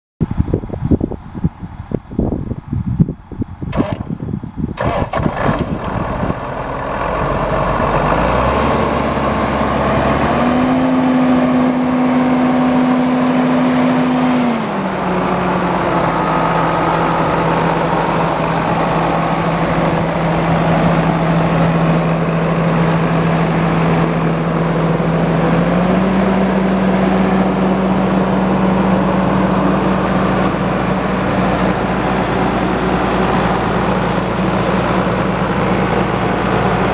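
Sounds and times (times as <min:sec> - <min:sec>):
tractor diesel engine: 0:03.6 - 0:36.9.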